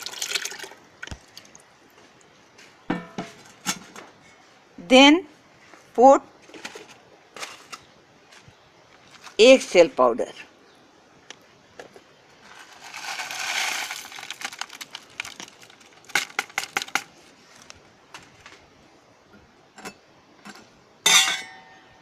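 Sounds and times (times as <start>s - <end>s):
eggshells pouring: 12.5s - 16.9s.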